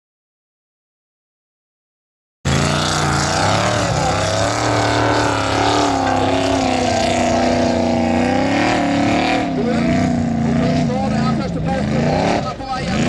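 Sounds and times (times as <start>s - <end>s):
car engine at high revs: 2.5s - 13.0s.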